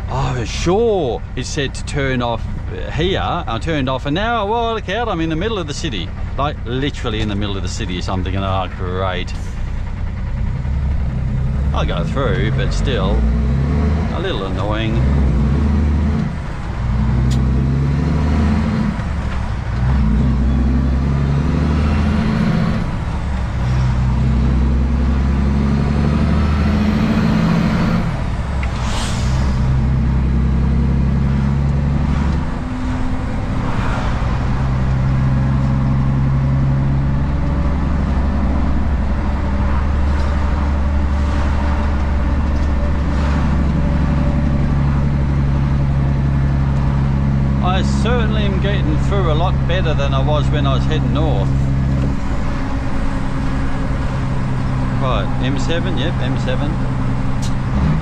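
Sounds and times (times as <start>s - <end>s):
truck diesel engine: 0.0s - 58.0s
short air hiss: 28.8s - 29.6s.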